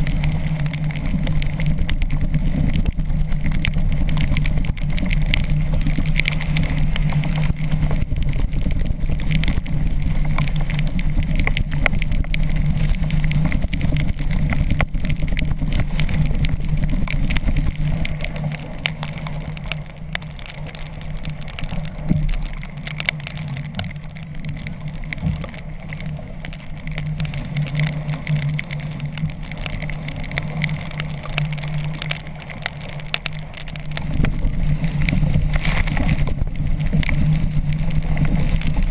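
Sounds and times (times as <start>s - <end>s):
rain spattering: 0.0s - 38.9s
wind noise: 0.0s - 38.9s.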